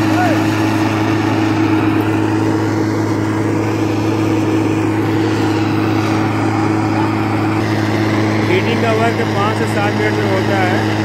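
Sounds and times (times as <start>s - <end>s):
petrol blower engine humming: 0.0s - 11.0s.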